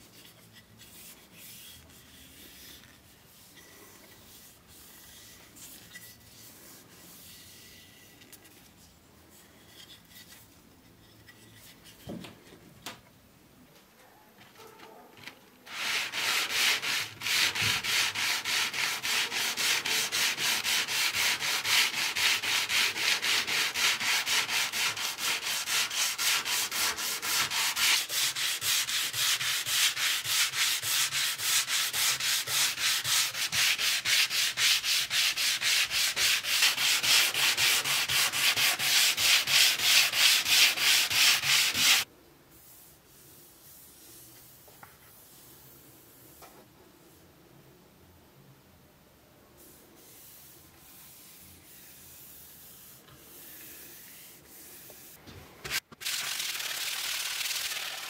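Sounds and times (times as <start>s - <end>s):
sanding sponge rubbing wood: 15.7s - 42.8s.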